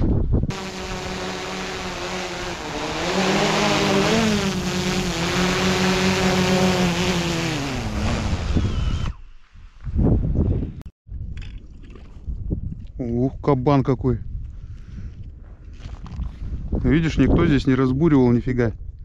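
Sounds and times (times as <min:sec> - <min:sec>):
small engine running: 0:00.5 - 0:09.2.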